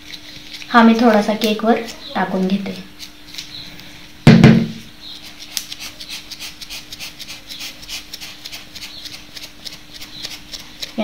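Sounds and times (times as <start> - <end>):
loud thump: 4.3 - 4.8.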